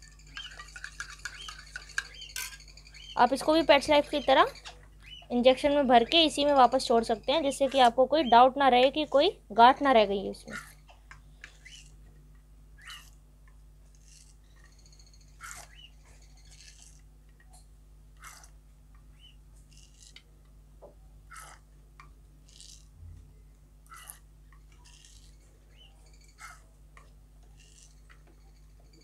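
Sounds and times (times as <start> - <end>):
bird chirps and squeaks: 0.3 - 5.4, 11.5 - 12.0, 12.8 - 13.2, 14.0 - 17.0, 21.3 - 21.6, 24.8 - 26.6, 27.6 - 28.1.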